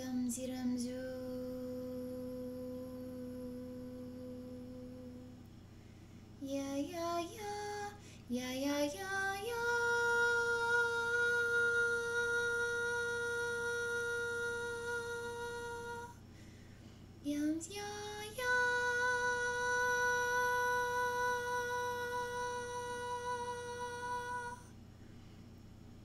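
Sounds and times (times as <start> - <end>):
faint low hum: 0.0 - 26.0
woman toning long notes: 17.3 - 24.7.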